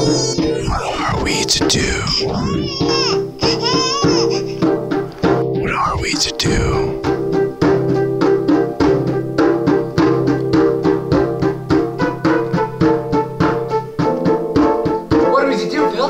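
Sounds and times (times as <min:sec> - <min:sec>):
percussion beat: 0:00.0 - 0:04.6.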